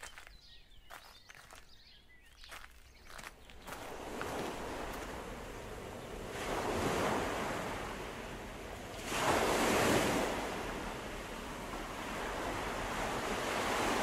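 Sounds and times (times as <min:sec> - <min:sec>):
ocean surf washing onto beach: 0:03.8 - 0:14.0.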